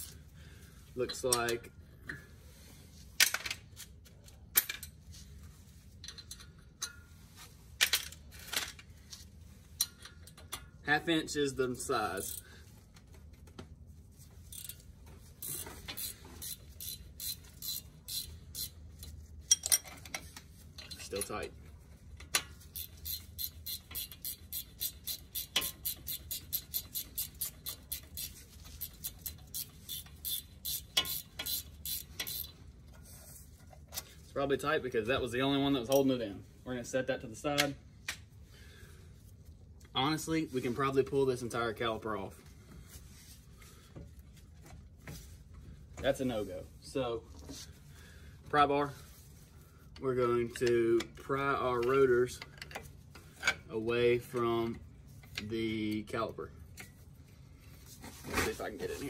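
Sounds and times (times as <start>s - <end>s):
socket ratchet clicking: 15.4s - 18.8s, 22.8s - 32.5s
metal tools clinking: 19.4s - 21.5s.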